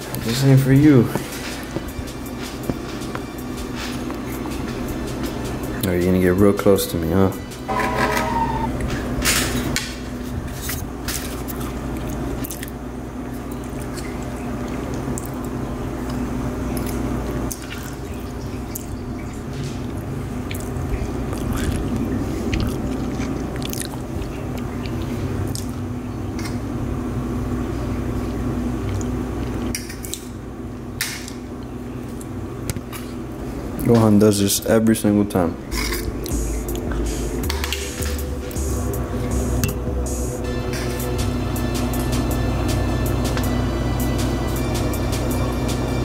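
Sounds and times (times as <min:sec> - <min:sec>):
steady low hum: 0:00.0 - 0:46.0
chewing: 0:11.1 - 0:12.8, 0:13.5 - 0:18.9, 0:19.9 - 0:25.8.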